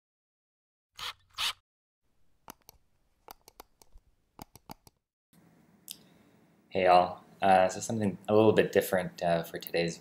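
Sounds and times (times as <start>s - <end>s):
faint room hiss: 5.4s - 10.0s.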